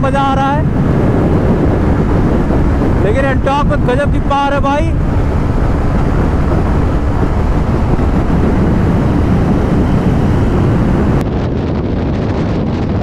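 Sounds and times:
road noise: 0:00.0 - 0:11.2
wind buffeting microphone: 0:00.0 - 0:13.0
scooter engine: 0:05.0 - 0:11.2.

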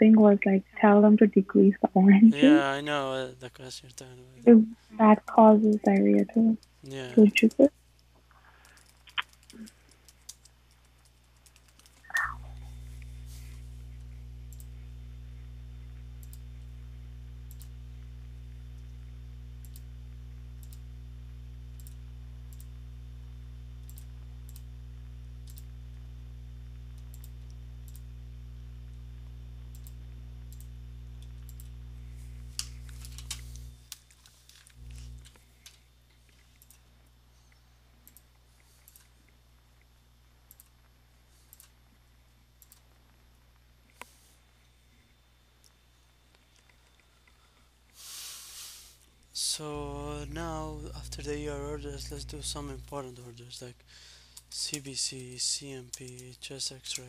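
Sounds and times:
low electrical hum: 0:00.0 - 0:57.0
keyboard typing: 0:08.6 - 0:12.4.

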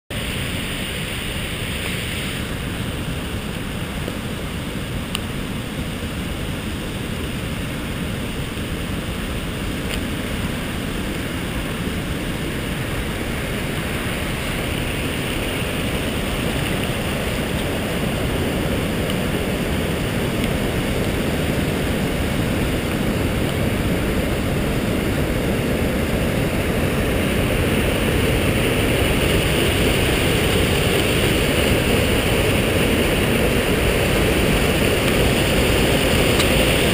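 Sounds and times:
water rushing over a weir: 0:00.1 - 0:36.9.

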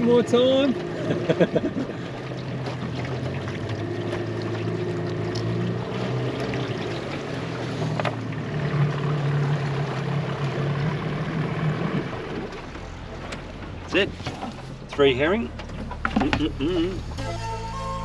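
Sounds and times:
outboard motor running: 0:00.0 - 0:18.0.

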